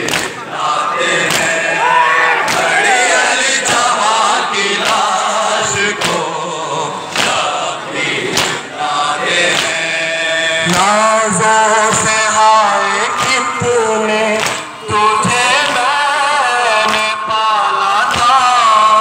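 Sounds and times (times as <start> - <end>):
hands slapping chests: 0.0 - 0.4, 1.2 - 1.6, 2.4 - 2.7, 4.8 - 5.2, 6.0 - 6.3, 7.1 - 7.5, 8.3 - 8.7, 9.5 - 9.8, 14.4 - 14.7
crowd of men chanting: 0.0 - 19.0.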